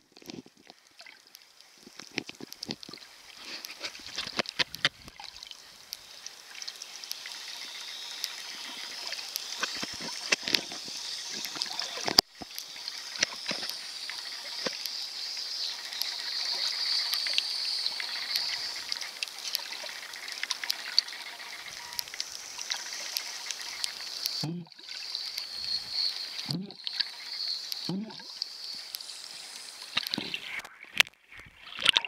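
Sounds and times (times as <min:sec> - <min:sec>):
underwater clicks and crackles: 0:00.0 - 0:32.0
underwater hiss of moving water: 0:05.6 - 0:30.6.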